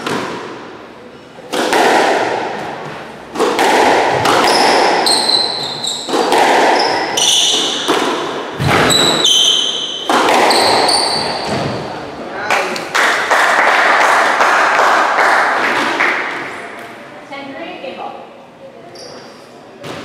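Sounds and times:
squash ball hits echoing: 0.0 - 0.8, 1.4 - 12.0, 13.1 - 16.5
sneakers squeaking on wooden floor: 4.4 - 7.9, 8.5 - 11.9, 18.9 - 19.4.

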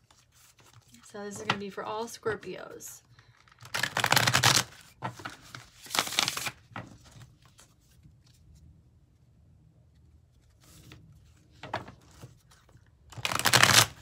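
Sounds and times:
cards shuffling: 0.0 - 1.6, 3.3 - 8.4, 10.4 - 14.0
faint card handling: 0.0 - 1.6.

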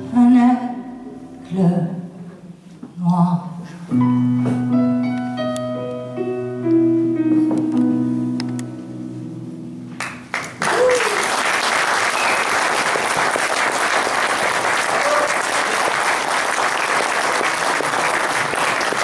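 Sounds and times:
sustained keyboard chord: 4.0 - 10.4
audience applause: 10.0 - 19.0
audience cheer: 10.6 - 13.4, 14.6 - 16.0.

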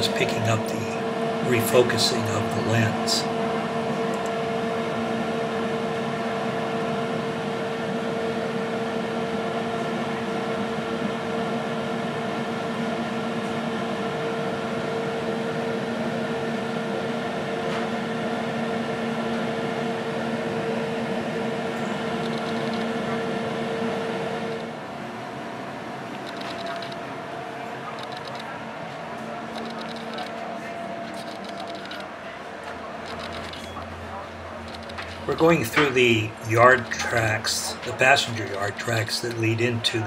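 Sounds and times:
steady hum with held tones: 0.0 - 17.6, 18.2 - 40.0
camera lens clicks: 29.6 - 30.3, 31.1 - 32.1, 33.0 - 33.8.

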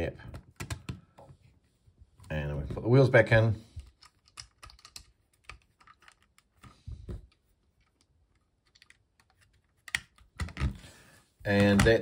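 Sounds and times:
plastic toy bricks clicking: 3.9 - 6.5.

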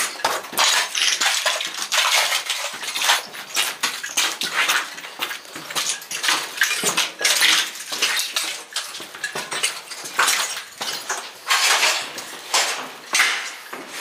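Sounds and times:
footsteps crunching over debris: 4.4 - 14.0.

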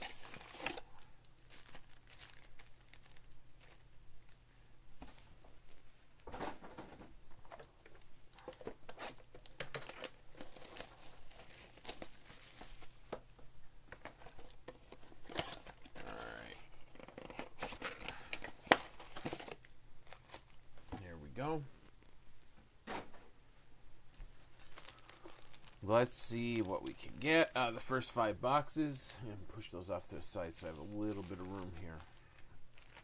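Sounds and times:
foil packs crinkling: 0.0 - 4.4, 8.4 - 13.0, 24.5 - 27.4, 30.5 - 33.0.

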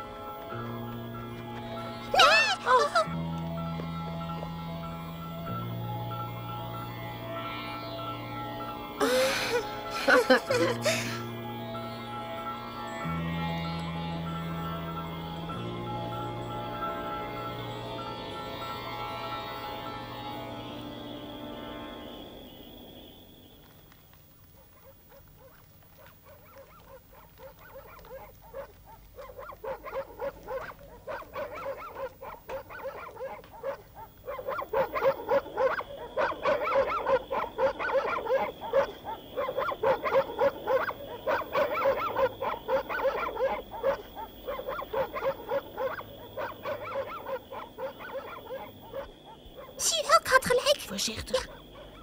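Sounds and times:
animal chattering calls: 2.1 - 3.1, 24.6 - 52.0.

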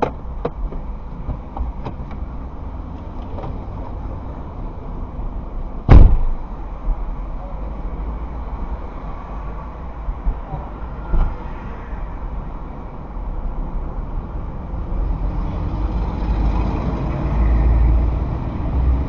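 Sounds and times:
car door slamming: 5.8 - 6.4.

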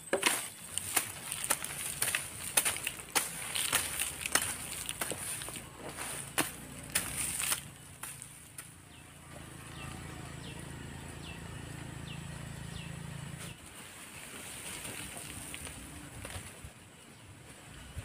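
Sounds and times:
rustle of cut weeds: 0.0 - 8.7, 13.2 - 16.8
bird chirping: 0.0 - 13.6
blade chopping into soil: 0.2 - 8.3.

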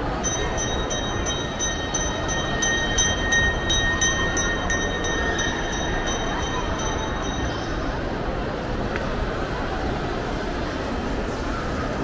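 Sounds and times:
shopping mall background din: 0.0 - 12.0
faint high ringing tone: 0.1 - 8.4.

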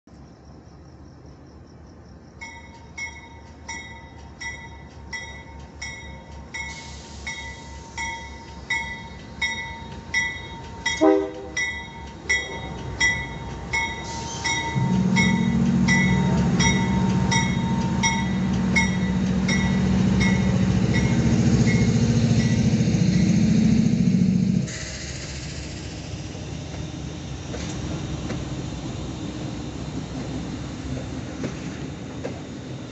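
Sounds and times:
diesel locomotive engines passing: 0.4 - 32.9
warning bell dinging: 7.4 - 22.0
locomotive horn blast: 11.0 - 11.7.

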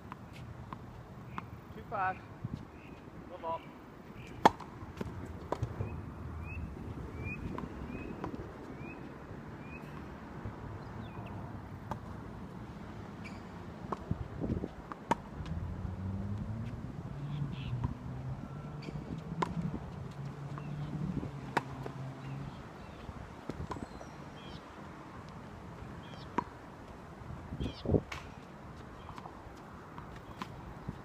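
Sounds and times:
birds chirping: 2.7 - 4.4, 5.7 - 10.0, 22.0 - 24.7.

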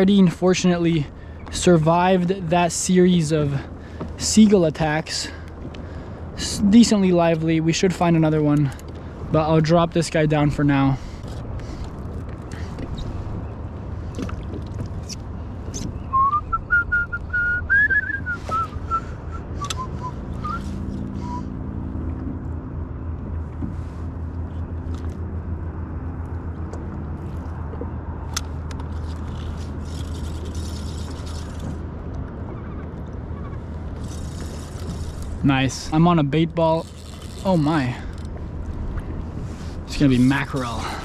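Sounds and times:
person whistling a tune: 16.1 - 21.5.

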